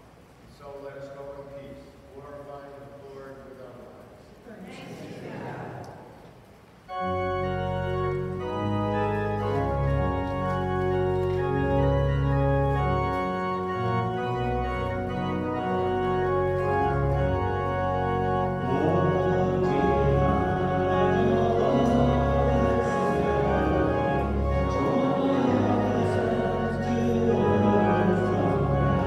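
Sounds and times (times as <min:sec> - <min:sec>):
church organ chords: 0:06.8 - 0:29.0.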